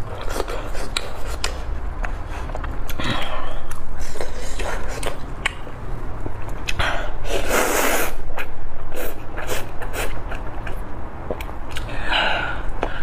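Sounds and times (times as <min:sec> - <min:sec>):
person slurping noodles: 0:07.2 - 0:08.2.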